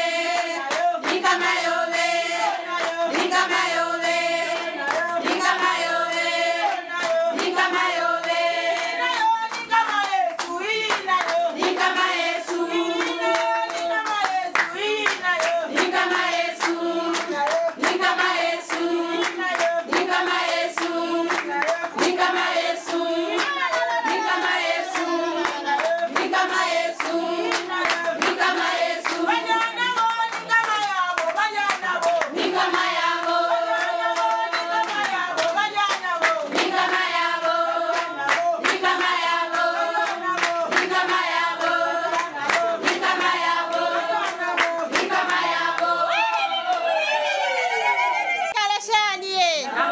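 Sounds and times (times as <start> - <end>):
rhythmic hand clapping: 0.0 - 47.8
group of people singing: 0.0 - 48.6, 49.7 - 49.9.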